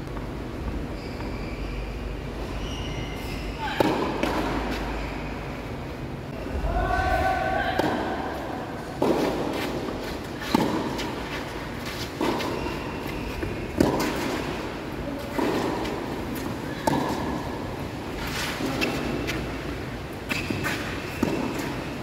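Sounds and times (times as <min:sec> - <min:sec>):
tennis racket hitting ball: 0:03.7 - 0:04.8, 0:09.0 - 0:17.5, 0:20.3 - 0:21.8.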